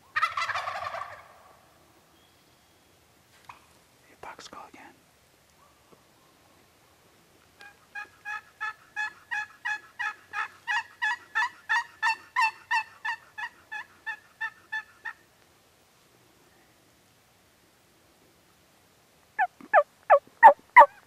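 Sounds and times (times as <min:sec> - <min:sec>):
wild turkey yelping: 0:00.1 - 0:01.6, 0:07.6 - 0:15.2, 0:19.4 - 0:21.0.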